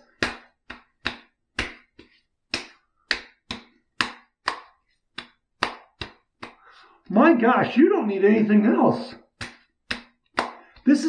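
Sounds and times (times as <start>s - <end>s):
palms patting cheeks: 0.0s - 7.2s, 8.4s - 11.0s.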